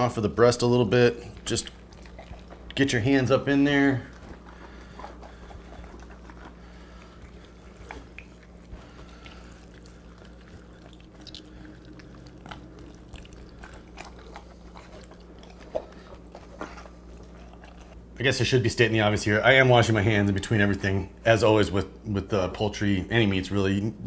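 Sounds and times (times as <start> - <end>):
wet squelching of raw meat: 0.0 - 18.1
low steady hum: 0.0 - 24.0.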